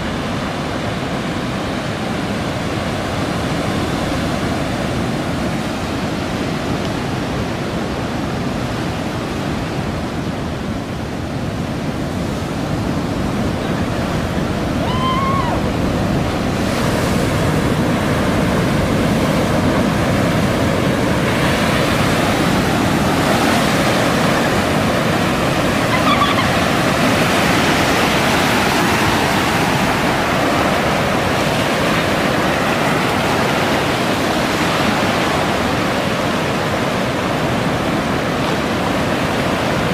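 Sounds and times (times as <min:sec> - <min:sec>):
storm waves breaking: 0:00.0 - 0:39.9.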